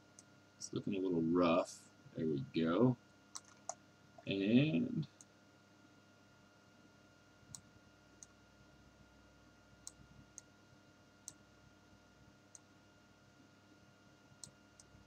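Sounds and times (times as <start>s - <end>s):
faint electrical hum: 0.0s - 15.0s
computer mouse clicks: 3.3s - 3.8s, 7.5s - 8.4s, 9.8s - 10.5s, 11.2s - 11.4s, 14.4s - 15.0s.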